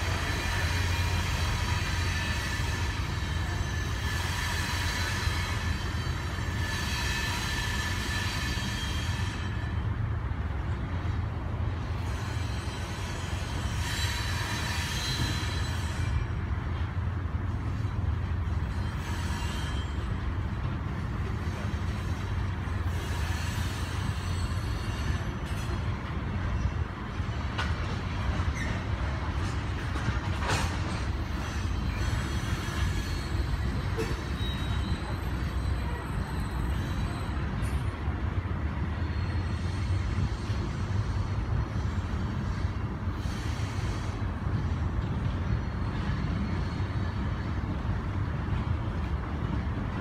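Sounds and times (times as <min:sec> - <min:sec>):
high-pitched wheel squeal: 0:00.0 - 0:10.0, 0:12.0 - 0:16.4, 0:18.6 - 0:20.2, 0:22.9 - 0:25.8, 0:30.9 - 0:37.9, 0:38.8 - 0:41.4
train wheels rumbling on rail: 0:00.0 - 0:50.0.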